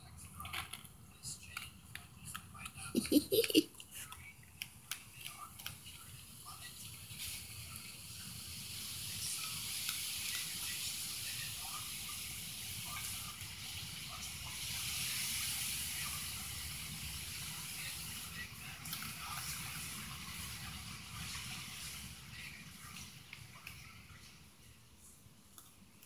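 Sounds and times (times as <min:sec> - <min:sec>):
even hiss: 0:02.8 - 0:04.1, 0:05.6 - 0:24.6.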